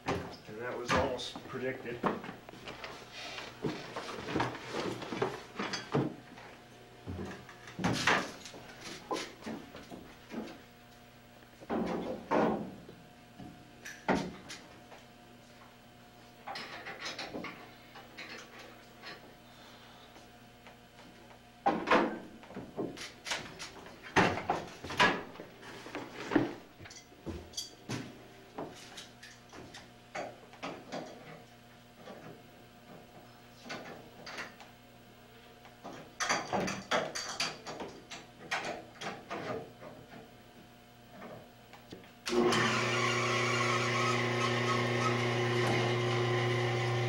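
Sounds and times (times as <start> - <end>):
machine humming: 42.3 - 47.0.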